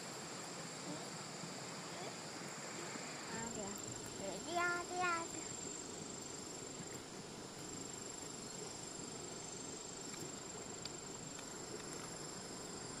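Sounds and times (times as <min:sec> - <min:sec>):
background hiss: 0:00.0 - 0:13.0
insects trilling: 0:00.0 - 0:13.0.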